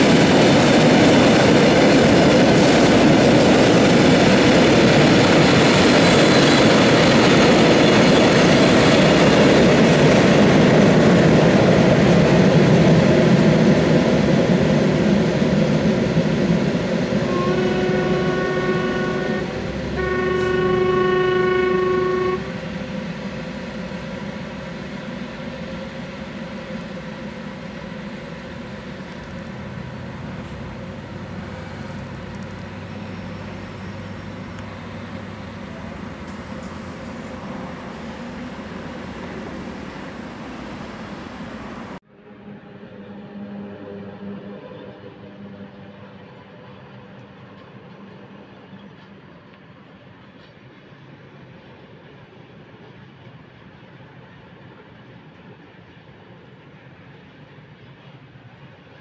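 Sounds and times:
freight train wheels rumbling: 0.0s - 42.0s
train horn blasts: 17.0s - 42.0s.

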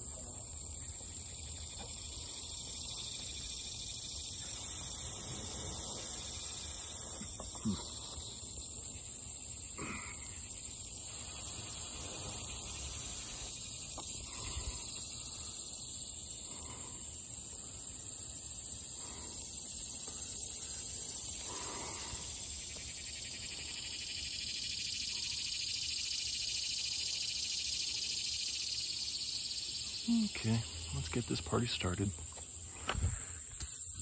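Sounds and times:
insects chirring: 0.0s - 34.0s.

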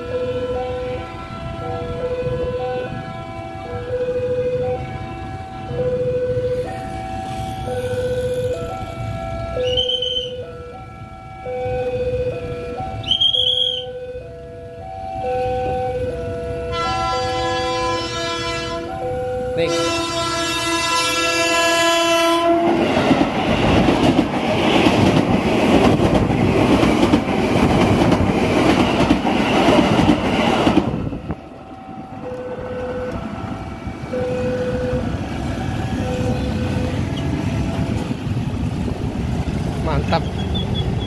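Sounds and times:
level crossing alarm ringing: 0.0s - 22.3s, 31.6s - 37.1s
train rushing past: 0.0s - 41.0s
train horn blasts: 9.6s - 10.5s, 15.4s - 19.0s, 19.6s - 22.8s.

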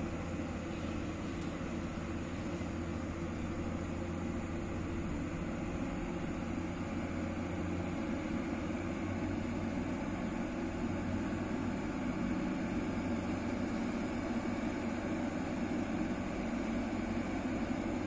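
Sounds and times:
diesel truck engine droning: 0.0s - 18.0s.

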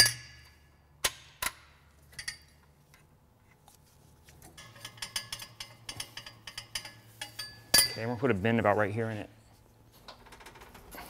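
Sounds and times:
metallic clicks and clanks: 4.5s - 8.2s.

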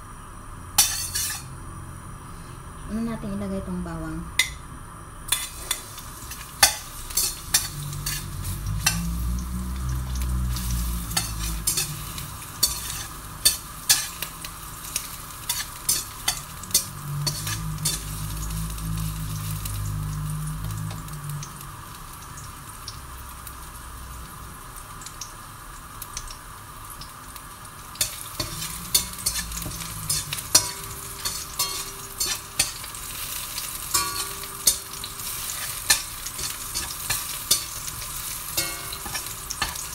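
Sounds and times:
garlic sizzling in hot oil: 0.1s - 39.9s
metal spatula scraping pan: 0.8s - 1.5s, 5.3s - 9.2s, 9.8s - 14.3s, 15.0s - 18.5s, 28.0s - 39.9s.

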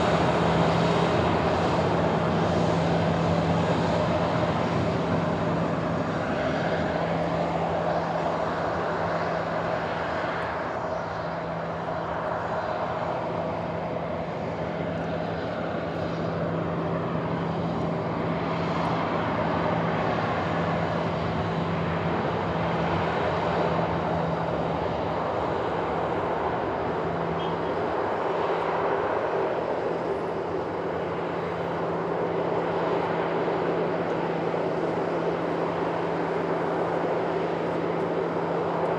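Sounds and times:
jet engines running: 0.0s - 38.9s.

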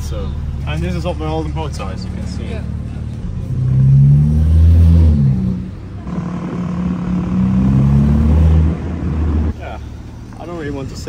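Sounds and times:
car engine revving: 0.0s - 10.7s.

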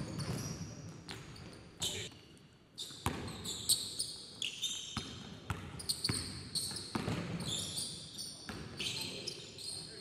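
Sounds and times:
sneaker squeaks: 0.0s - 10.0s
basketball bouncing on gym floor: 5.0s - 7.5s.

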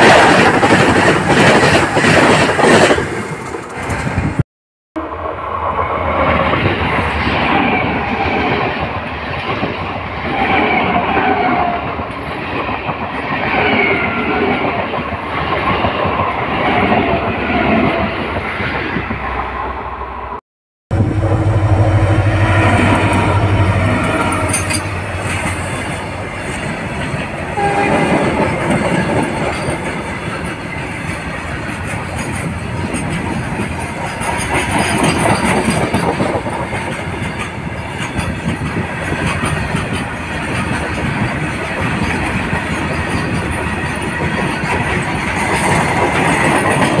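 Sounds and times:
train wheels clattering on rails: 0.0s - 4.4s, 24.2s - 47.0s
locomotive rumble: 20.9s - 47.0s
train horn: 21.0s - 26.3s, 27.4s - 28.4s.

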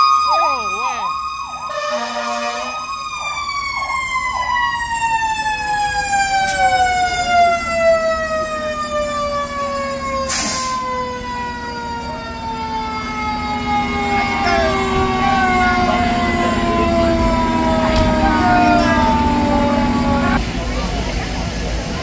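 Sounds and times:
siren tone winding down: 0.0s - 20.4s
wavering electronic siren: 0.0s - 20.4s
truck engine hum: 0.0s - 22.0s
hiss of air: 10.3s - 10.8s
horn blast: 14.2s - 20.4s.

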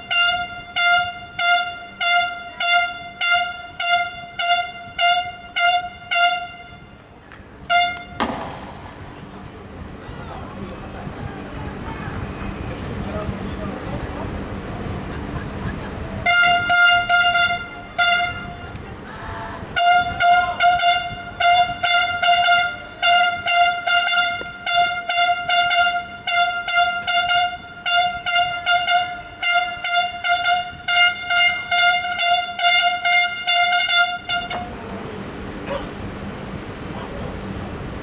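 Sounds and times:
car horn beeping rapidly: 0.0s - 7.0s, 7.6s - 8.4s, 16.2s - 18.7s, 19.7s - 34.7s.

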